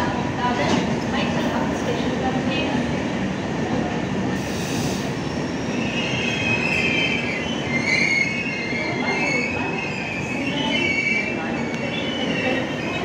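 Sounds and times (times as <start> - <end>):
train wheels rumbling on rails: 0.0 - 13.0
train wheels squealing: 4.4 - 13.0.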